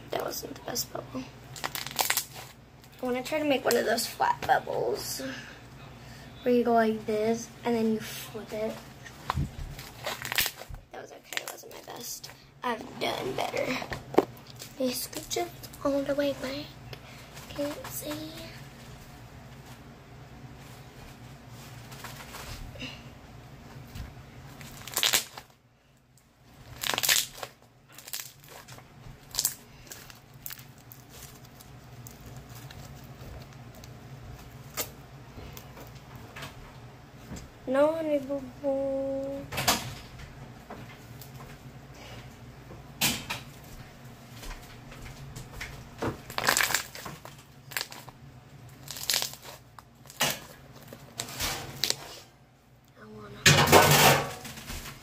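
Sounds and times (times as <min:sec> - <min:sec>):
slime squelching and crackling: 0:01.5 - 0:04.6, 0:08.4 - 0:16.6, 0:24.5 - 0:25.5, 0:26.5 - 0:36.1, 0:45.7 - 0:52.2
slime squishing and popping: 0:26.6 - 0:34.0, 0:46.3 - 0:48.1, 0:48.7 - 0:51.0.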